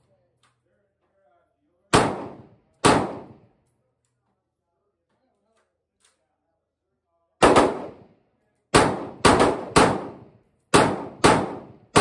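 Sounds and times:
gunshots with ringing tail: 0:01.9 - 0:03.5, 0:07.4 - 0:08.1, 0:08.7 - 0:12.0.

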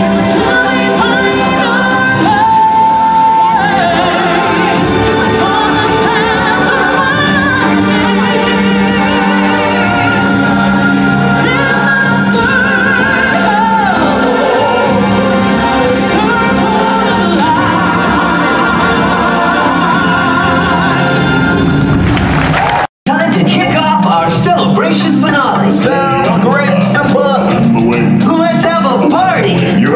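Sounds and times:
singers holding wavering notes: 0:00.0 - 0:21.9
sustained musical accompaniment: 0:00.0 - 0:22.5, 0:23.1 - 0:29.9.

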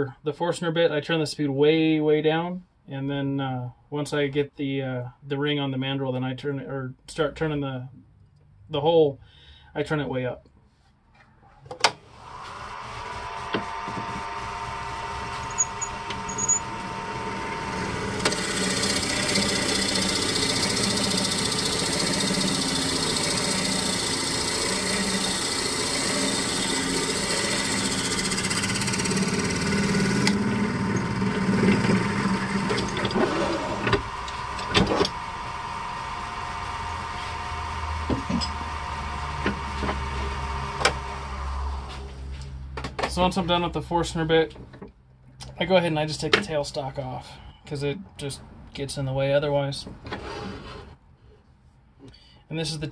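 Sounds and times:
wood lathe motor hum: 0:12.2 - 0:42.0
rasping tool cutting wood: 0:12.7 - 0:35.2
tool scrapes and clicks: 0:15.2 - 0:16.7, 0:30.2 - 0:35.2.

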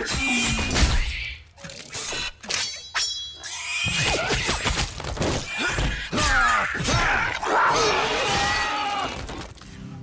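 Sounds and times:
high metallic ring: 0:02.6 - 0:03.4
rats squealing and screeching: 0:03.4 - 0:09.1.

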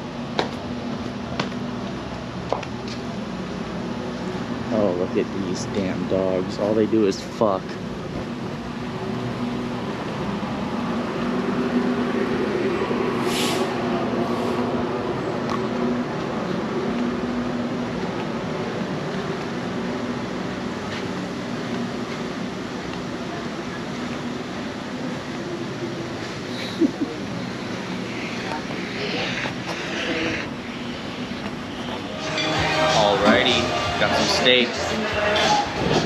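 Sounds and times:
mechanical hum: 0:00.0 - 0:36.0
brief high hiss: 0:13.2 - 0:13.8.

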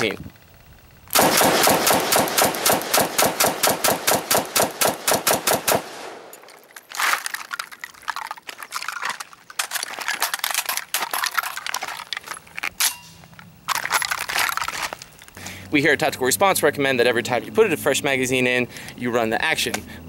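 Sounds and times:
rifle shots in rapid string: 0:01.1 - 0:06.3.

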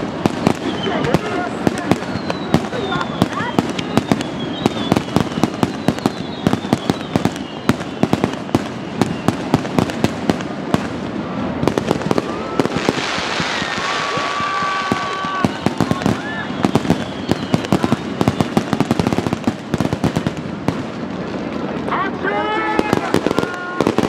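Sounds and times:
fireworks bangs and crackles: 0:00.0 - 0:24.0
hissing rush: 0:00.0 - 0:24.0
whistling tones: 0:00.6 - 0:08.2, 0:08.8 - 0:09.5, 0:13.5 - 0:18.9.

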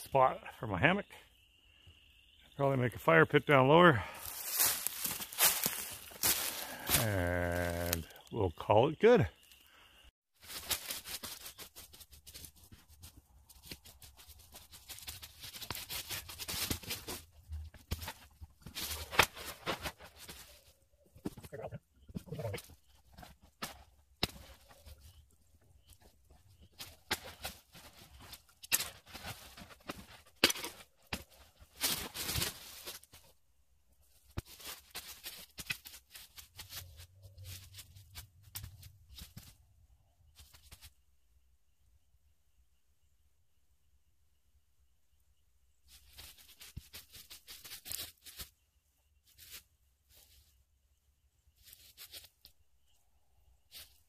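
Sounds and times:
dry leaves and twigs crunching: 0:04.0 - 0:08.4, 0:10.4 - 0:33.4, 0:34.0 - 0:39.6, 0:45.9 - 0:48.6, 0:49.2 - 0:50.6, 0:51.6 - 0:53.0.

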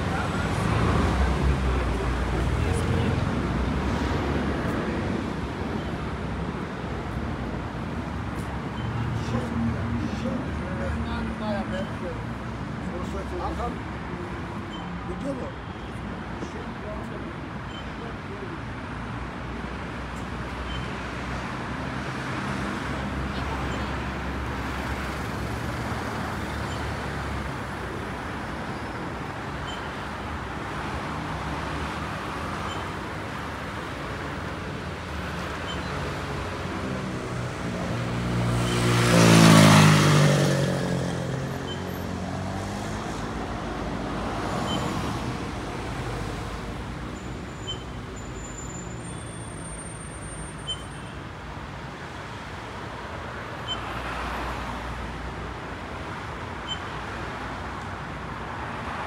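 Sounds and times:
hum of passing cars: 0:19.4 - 0:47.5.

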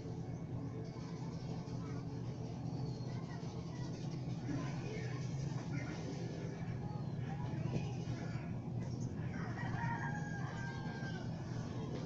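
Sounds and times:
steady low hum: 0:00.0 - 0:12.0
rooster crowing: 0:09.3 - 0:11.6.

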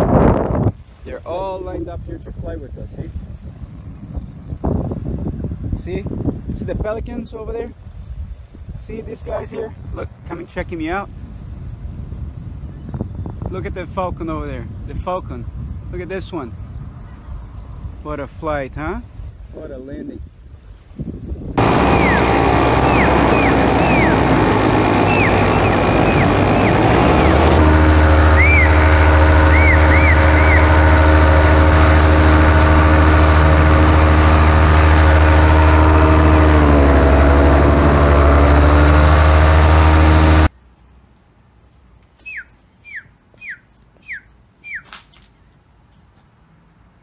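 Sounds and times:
paramotor engine running: 0:21.6 - 0:40.5
descending whistled calls: 0:21.8 - 0:27.5, 0:28.3 - 0:30.7, 0:42.2 - 0:45.0
short high chirps: 0:28.3 - 0:30.7.

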